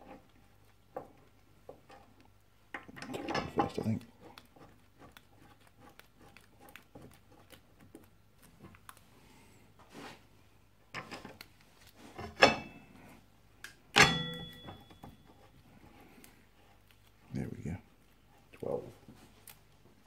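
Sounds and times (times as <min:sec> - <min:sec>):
sharp metal clanks: 0:14.0 - 0:15.1.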